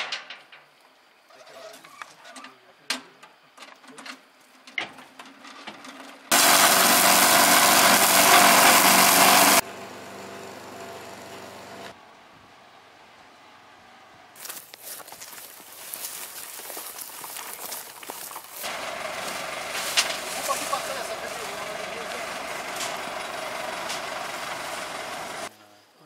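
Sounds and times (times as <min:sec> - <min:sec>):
brush cutter petrol engine running: 0:06.3 - 0:12.0, 0:14.4 - 0:25.5.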